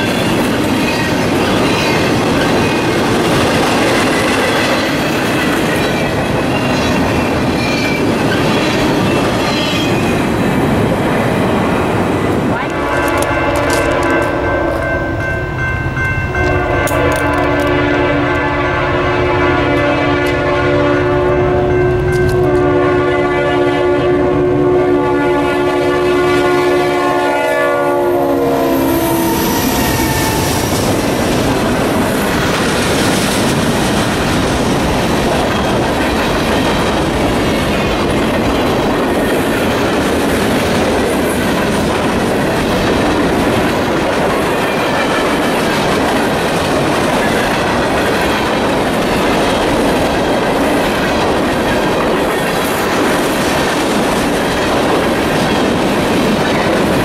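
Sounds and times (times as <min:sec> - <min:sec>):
train wheels clattering over rails: 0:00.0 - 0:14.9, 0:29.5 - 0:57.0
locomotive horn: 0:12.6 - 0:15.2, 0:16.4 - 0:31.2.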